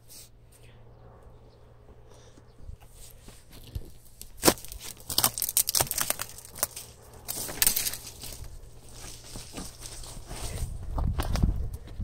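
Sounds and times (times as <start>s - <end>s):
branches rustling and crackling: 2.8s - 12.0s.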